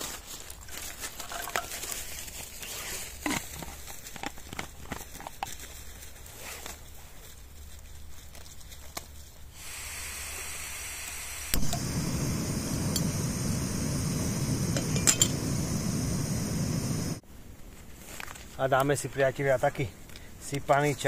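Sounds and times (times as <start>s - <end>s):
rushing hiss of heating water: 9.5s - 17.2s
metallic clinks of cookware: 14.8s - 15.4s.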